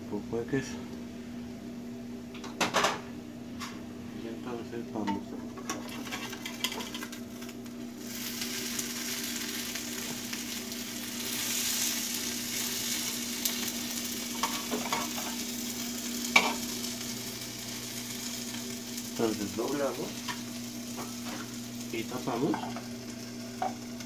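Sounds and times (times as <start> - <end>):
omelette sizzling in a pan: 5.8 - 24.0.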